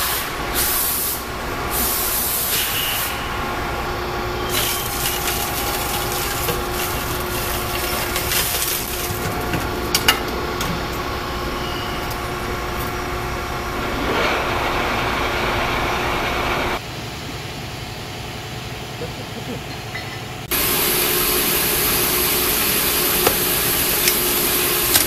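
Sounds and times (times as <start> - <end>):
hiss: 0.0 - 3.3
hydraulic press humming: 0.0 - 16.8, 19.7 - 25.0.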